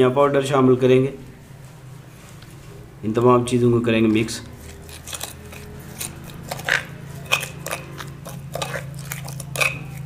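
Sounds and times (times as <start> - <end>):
steady low hum: 0.0 - 10.0
spoon scraping ceramic bowl: 4.6 - 10.0.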